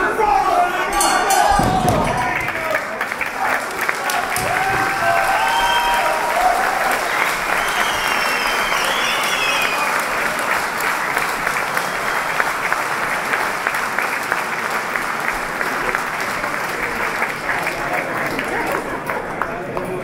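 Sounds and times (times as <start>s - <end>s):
crowd applauding: 0.0s - 20.0s
murmur of voices: 0.0s - 20.0s
shrill gliding whistle: 7.4s - 10.0s.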